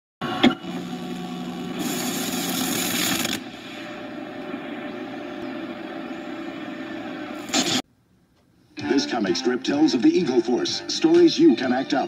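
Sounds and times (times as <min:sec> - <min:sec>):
low hum: 0:00.2 - 0:08.3
tape hiss: 0:00.4 - 0:10.6.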